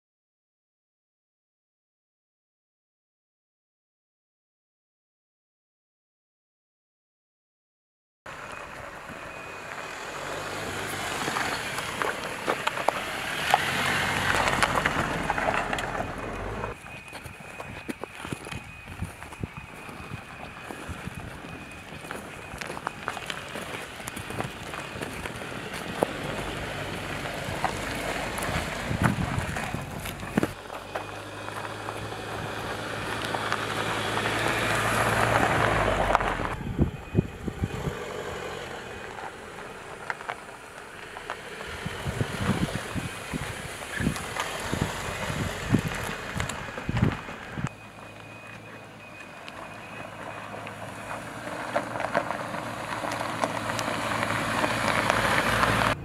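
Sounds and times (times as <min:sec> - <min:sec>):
car engine running: 0:08.3 - 0:16.8, 0:21.4 - 0:56.0
tyres on gravel: 0:08.3 - 0:56.0
wheels thumping over rocks: 0:22.0 - 0:32.5, 0:42.0 - 0:47.6.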